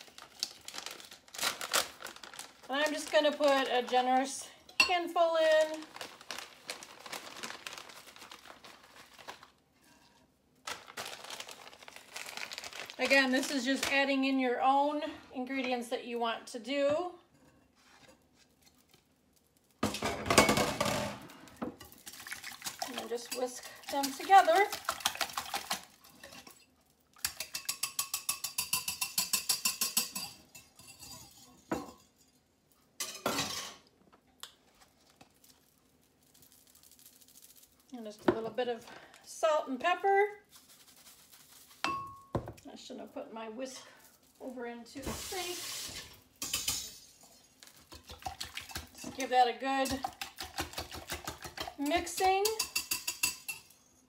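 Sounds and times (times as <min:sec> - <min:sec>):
plastic bag crinkling: 0:00.0 - 0:04.4, 0:05.2 - 0:09.7, 0:10.6 - 0:14.1, 0:34.6 - 0:39.2, 0:40.2 - 0:41.9, 0:43.8 - 0:46.4
whisk clinking in glass bowl: 0:27.2 - 0:32.0, 0:49.8 - 0:53.8.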